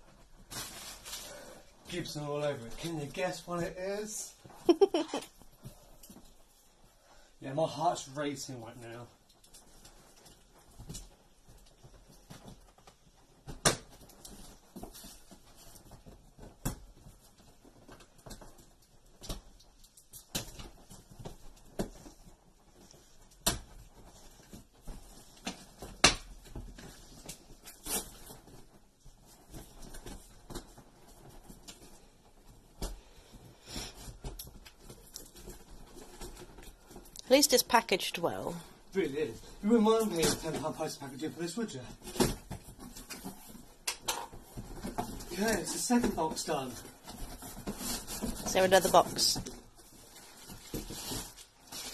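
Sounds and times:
cardboard rustling and scraping: 0.1 - 4.2, 20.4 - 37.7, 38.8 - 51.9.

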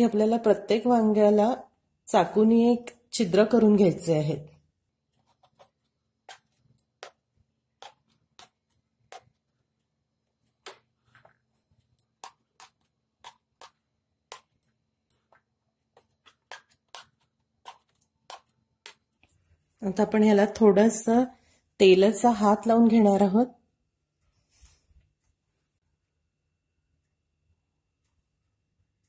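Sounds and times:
knife stabbing vegetables: 5.4 - 9.5.

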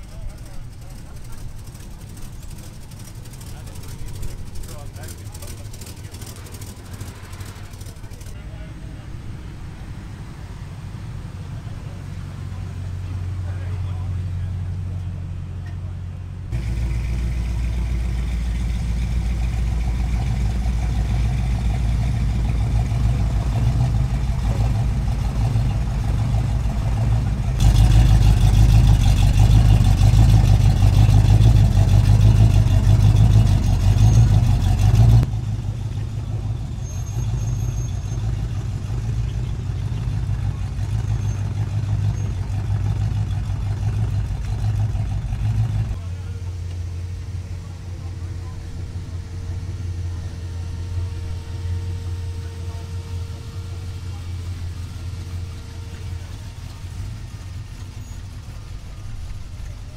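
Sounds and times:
car engines passing at low revs: 0.0 - 59.9
pickup truck driving by: 0.0 - 59.9.

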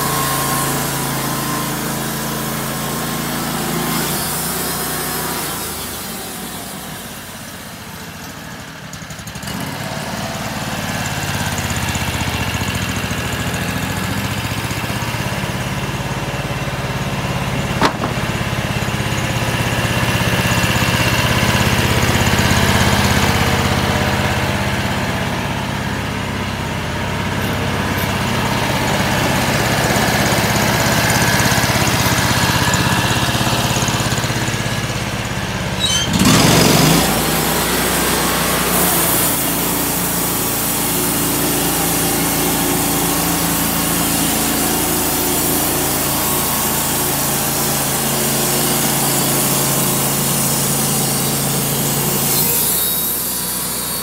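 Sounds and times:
band saw blade cutting log: 0.0 - 7.0, 17.7 - 19.7, 35.8 - 54.0
gasoline engine running: 10.8 - 54.0.

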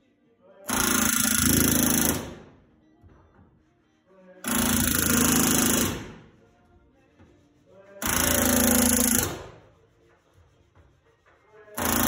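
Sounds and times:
pneumatic rivet gun hammering: 0.7 - 2.5, 4.5 - 6.2, 8.0 - 9.6, 11.8 - 12.0.

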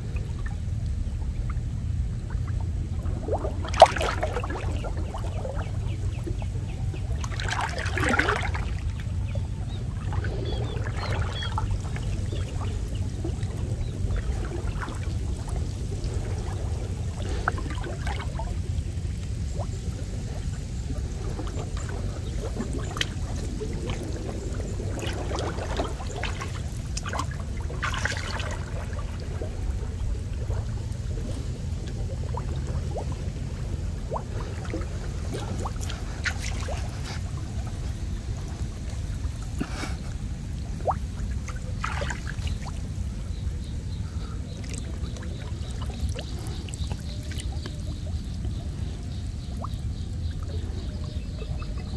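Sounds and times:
water dripping: 0.0 - 39.9, 40.5 - 51.9
steady low rumble: 0.0 - 51.9
water sloshing and splashing: 0.0 - 51.9.

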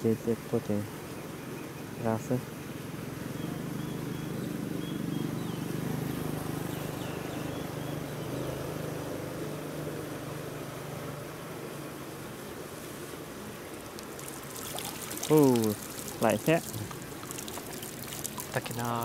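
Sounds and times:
small motor droning: 2.8 - 12.1.

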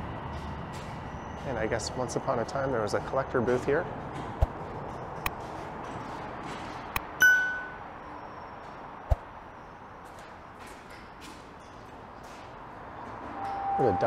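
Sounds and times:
bright ding: 7.2 - 7.9.

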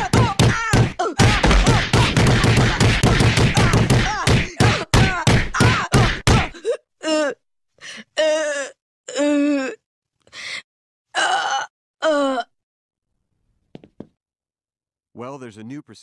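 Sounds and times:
cartoon punching blows: 0.0 - 6.6.

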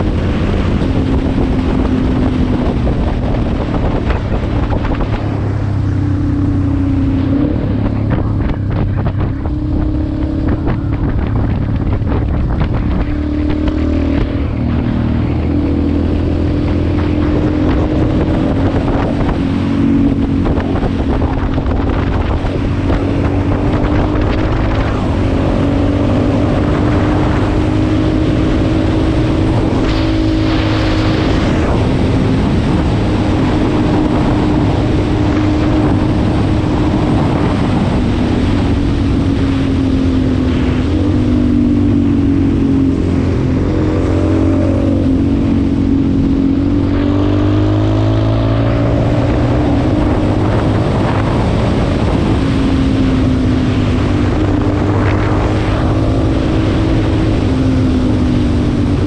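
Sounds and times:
motorcycle engine running: 0.0 - 59.0
wind noise: 0.0 - 59.0.

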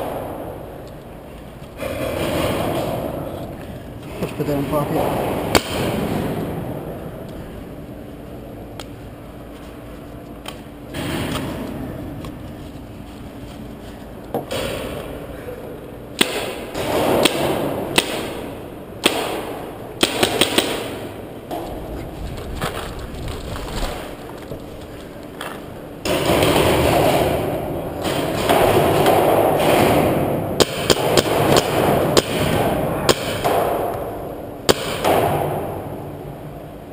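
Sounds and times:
paintball markers firing: 16.2 - 21.7, 26.0 - 35.8.

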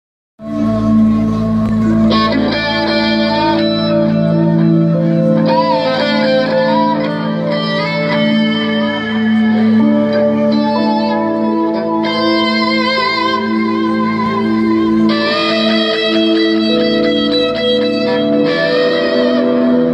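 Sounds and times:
electric guitar bending sustained notes: 0.4 - 19.9.

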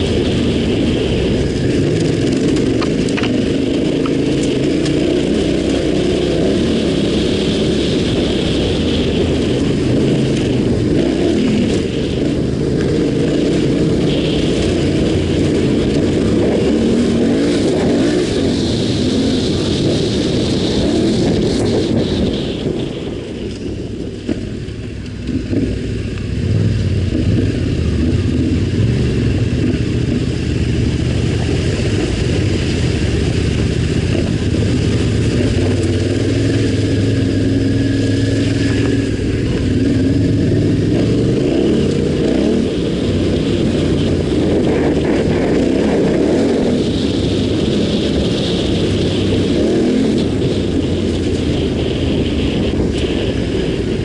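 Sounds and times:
motorcycle engine: 0.0 - 54.0.

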